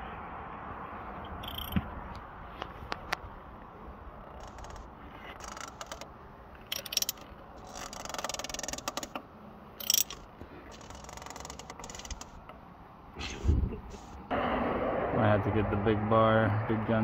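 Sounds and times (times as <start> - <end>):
oil filter wrench clicks and scrapes: 1.3 - 1.8, 4.3 - 9.2, 9.8 - 12.4
rapid ratchet clicks: 1.4 - 1.8, 4.3 - 6.1, 6.7 - 9.2, 9.8 - 12.4.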